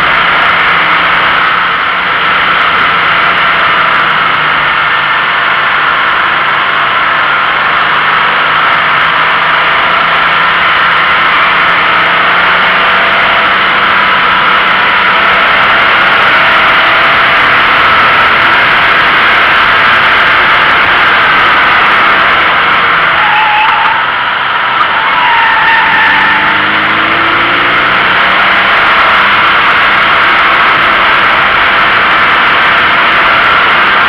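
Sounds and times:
faint car engine running: 0.0 - 34.0.

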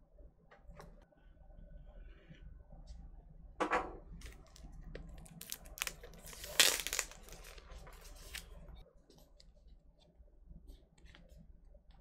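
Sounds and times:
plastic wrap crinkling and tearing: 4.2 - 8.7.

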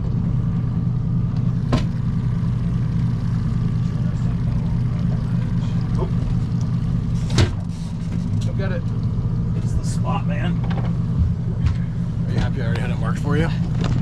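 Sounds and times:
outboard motor running: 0.0 - 14.0.

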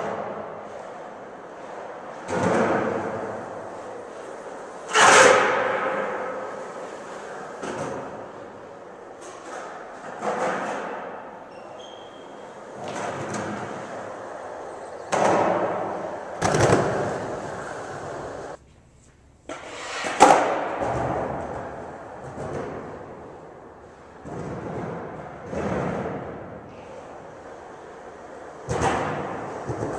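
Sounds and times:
skateboard wheels rolling on concrete: 0.0 - 18.6, 19.5 - 29.9
skateboard clacking: 12.3 - 18.6.

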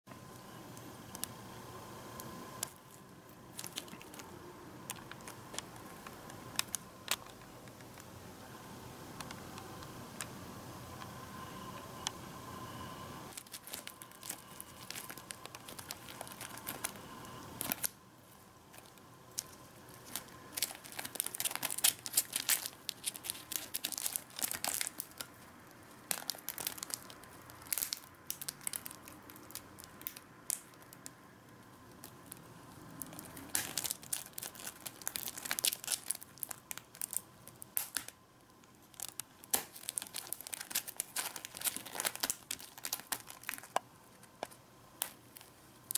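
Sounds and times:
beetles scratching and clicking on bark: 18.7 - 25.3.

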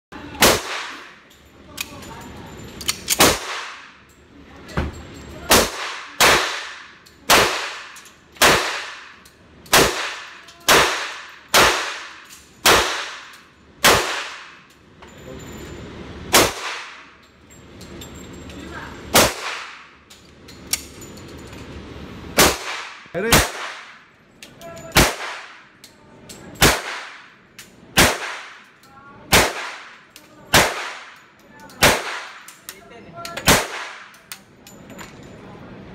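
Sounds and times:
pistol shots echoing: 0.4 - 1.2, 3.1 - 4.0, 5.5 - 14.6, 16.3 - 17.1, 19.1 - 20.0, 22.4 - 24.1, 24.9 - 25.8, 26.6 - 27.4, 28.0 - 28.7, 29.3 - 31.2, 31.8 - 32.5, 33.4 - 34.2.

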